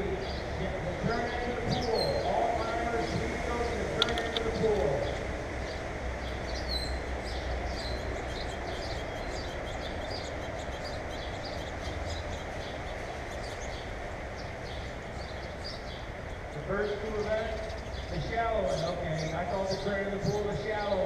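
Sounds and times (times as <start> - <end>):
outdoor background rumble: 0.0 - 21.0
small birds chirping: 0.0 - 21.0.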